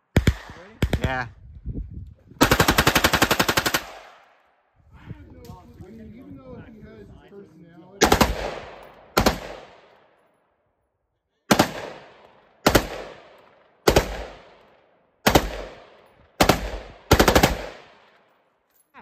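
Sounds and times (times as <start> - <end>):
rifle firing automatic bursts: 2.4 - 4.1, 8.0 - 9.8, 11.5 - 13.2, 13.9 - 14.5, 15.2 - 18.0.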